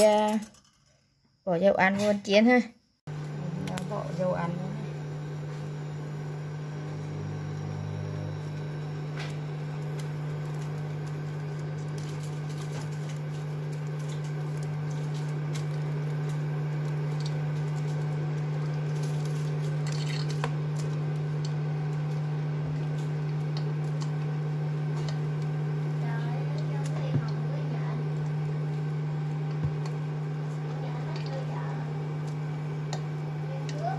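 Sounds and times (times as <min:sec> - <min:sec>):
cooktop low hum: 0:00.0 - 0:33.9
oil trickling into a pot: 0:11.8 - 0:20.9.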